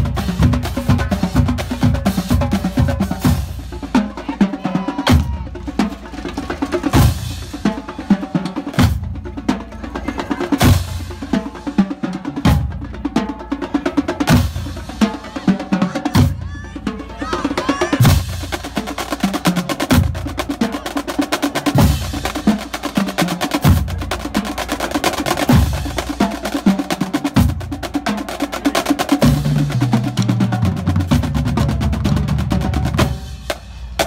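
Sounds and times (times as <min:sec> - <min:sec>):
marching bass drums: 0:00.0 - 0:34.0
snare drum rolls: 0:18.0 - 0:34.0.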